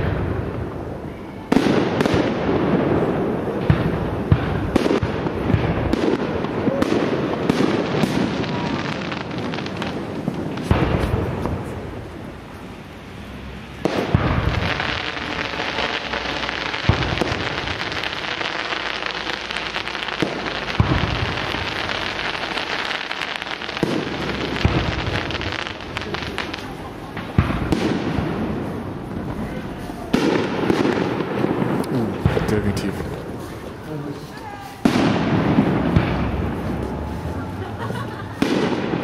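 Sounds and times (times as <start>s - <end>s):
steady hiss: 0.0s - 39.0s
firework shells bursting: 13.8s - 33.7s.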